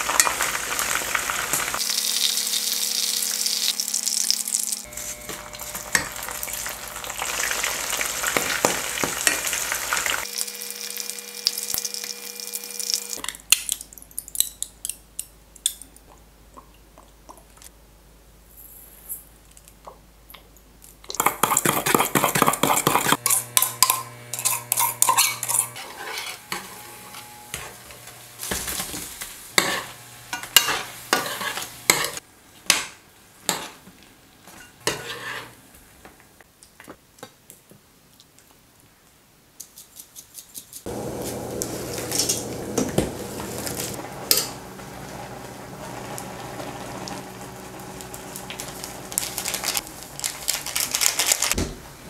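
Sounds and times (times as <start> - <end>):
pot of water boiling: 0.0 - 13.2, 40.9 - 51.6
sauce sizzling: 0.0 - 13.2, 26.9 - 32.2, 40.9 - 51.6
metal spatula scraping frying pan: 21.2 - 27.8, 28.4 - 32.2, 34.6 - 35.6.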